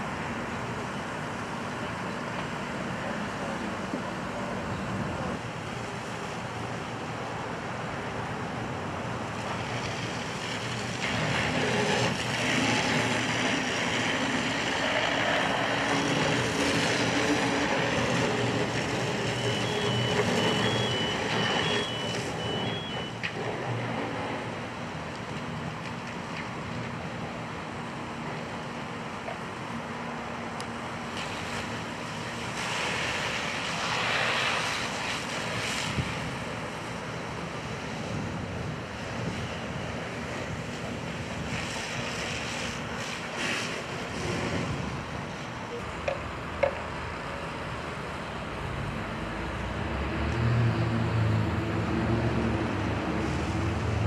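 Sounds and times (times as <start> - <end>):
engines droning: 0.0 - 54.0
fire hoses spraying water: 0.0 - 54.0
backup beeper: 19.3 - 23.2.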